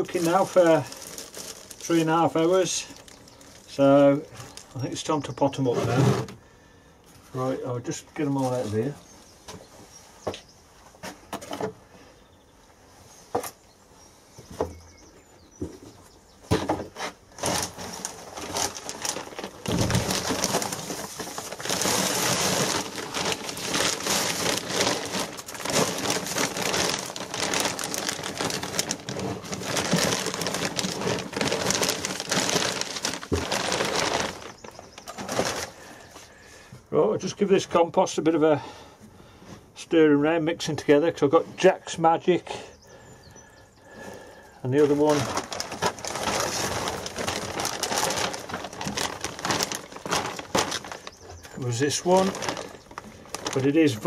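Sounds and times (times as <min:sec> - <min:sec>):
plastic bags crinkling: 0:00.0 - 0:05.6, 0:17.0 - 0:36.3, 0:43.9 - 0:54.0
plastic bags rustling: 0:00.0 - 0:06.3, 0:16.5 - 0:36.7, 0:43.9 - 0:54.0
compost pouring: 0:00.0 - 0:06.7, 0:17.3 - 0:36.7, 0:43.9 - 0:54.0.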